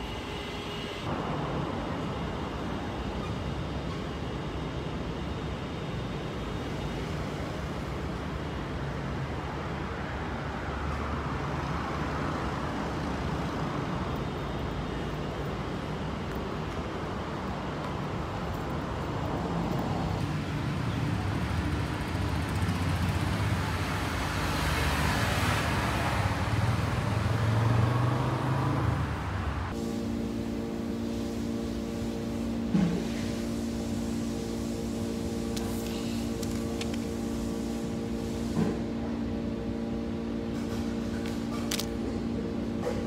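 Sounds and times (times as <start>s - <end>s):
passing vehicles: 7.1s - 30.6s.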